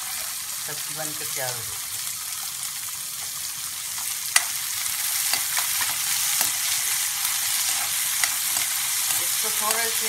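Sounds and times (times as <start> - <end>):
onions sizzling in hot oil: 0.0 - 10.0
spatula scraping and clicking on pan: 5.2 - 9.2.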